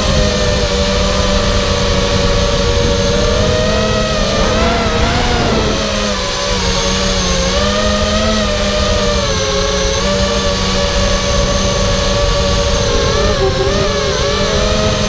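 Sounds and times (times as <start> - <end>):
drone motors whining: 0.0 - 15.0
low rumble: 2.8 - 7.0.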